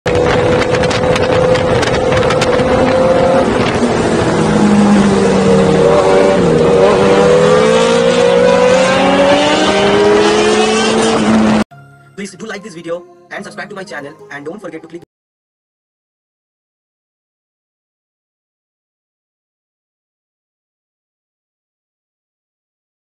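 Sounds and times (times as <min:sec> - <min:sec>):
motorcycle engine running: 0:00.1 - 0:07.0
wind rush on microphone: 0:00.1 - 0:07.4.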